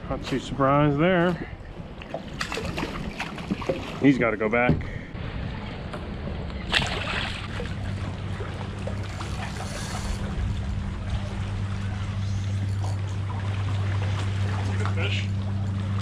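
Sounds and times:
steady low hum: 0.0 - 16.0
water lapping and trickling: 0.0 - 16.0
water splash: 2.0 - 4.1, 6.6 - 16.0.

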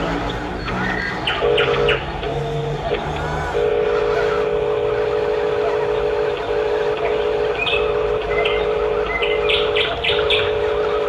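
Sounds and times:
birds chirping: 0.0 - 11.0
toy electric motor whining: 0.0 - 11.0.

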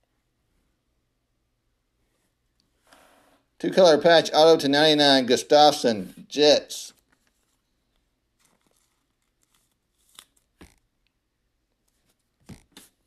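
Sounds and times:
trading card clicks and rustles: 6.9 - 11.1, 11.8 - 13.0.

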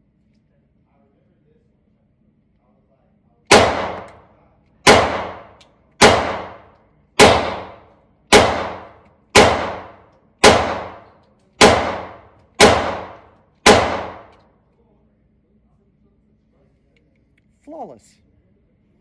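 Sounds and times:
pistol shots indoors: 3.4 - 14.6.

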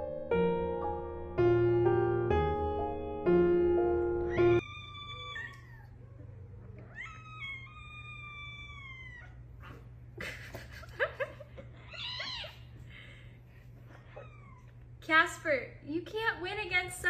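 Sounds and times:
kittens squeaky cries: 4.3 - 9.5, 11.8 - 12.7, 14.1 - 14.7
kittens meowing: 4.3 - 9.9, 11.8 - 12.7, 14.1 - 14.8.

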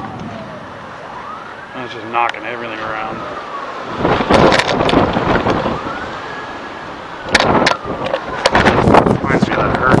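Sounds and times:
emergency siren wailing: 0.0 - 10.0
wind buffeting microphone: 3.0 - 10.0.

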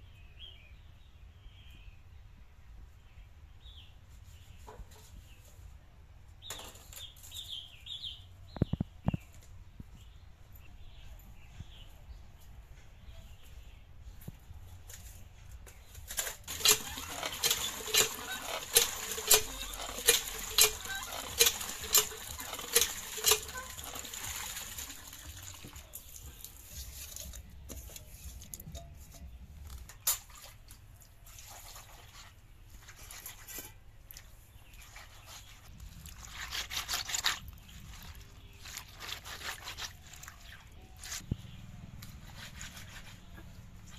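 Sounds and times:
hand pump handle clanking: 16.2 - 25.4
water splashing into metal pot: 16.5 - 27.4
hands scraping wet fish on concrete: 31.3 - 41.2, 42.0 - 43.9.

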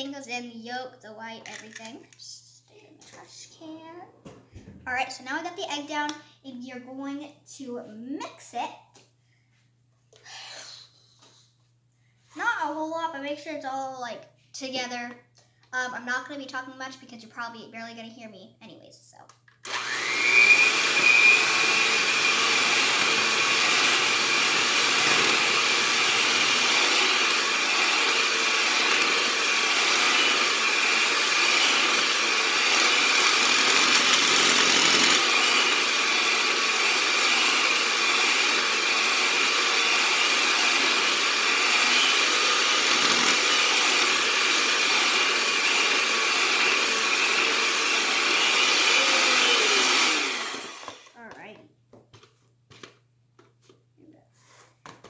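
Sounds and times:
electric hand mixer whining: 19.6 - 51.2.

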